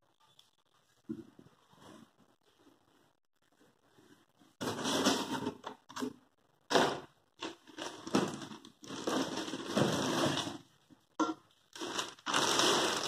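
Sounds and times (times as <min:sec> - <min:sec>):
plastic packaging crinkling: 0:07.4 - 0:10.6, 0:11.7 - 0:13.0.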